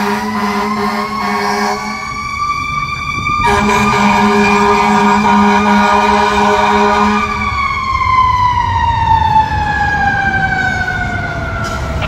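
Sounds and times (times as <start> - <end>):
fire engine horn: 0.0 - 7.7
siren winding down: 0.0 - 12.0
engine rumble: 7.3 - 12.0.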